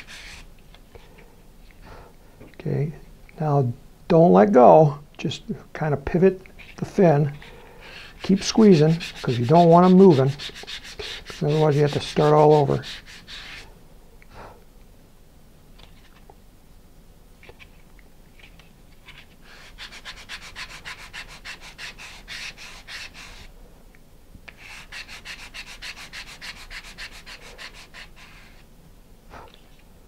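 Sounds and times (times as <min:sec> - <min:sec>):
sandpaper rubbing on wood: 0:00.0 - 0:00.4, 0:08.0 - 0:13.6, 0:19.1 - 0:23.5, 0:24.5 - 0:28.6.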